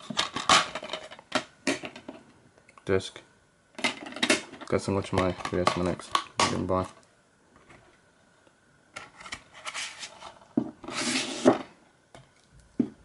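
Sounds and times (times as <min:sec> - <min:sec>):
case sliding into cardboard sleeve: 0:10.8 - 0:11.7.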